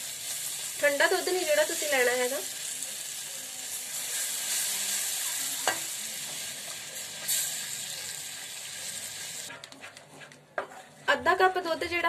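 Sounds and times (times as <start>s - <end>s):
roux sizzling in frying pan: 0.0s - 9.5s.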